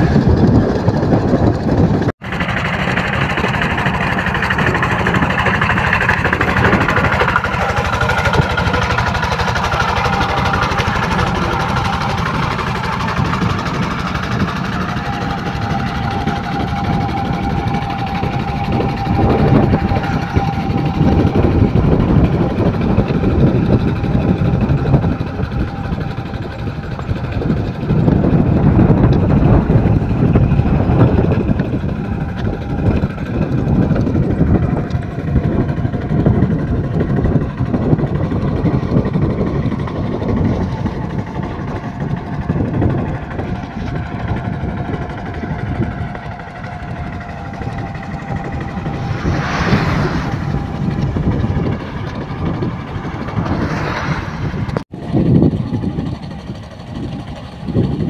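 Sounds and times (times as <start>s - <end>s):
hand tractor engine running: 0.0s - 58.0s.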